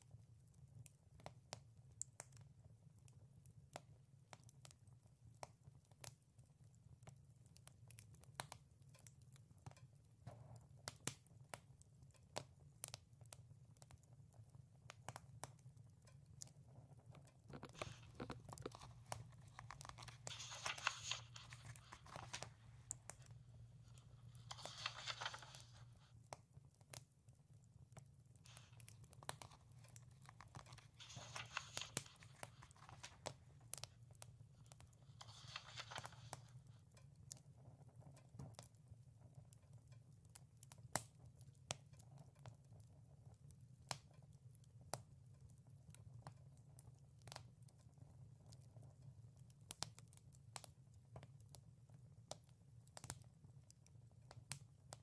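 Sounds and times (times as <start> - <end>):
wood fire crackling and popping: 0.5 - 55.0
book pages turning: 17.6 - 26.0, 28.5 - 33.9, 35.0 - 36.5.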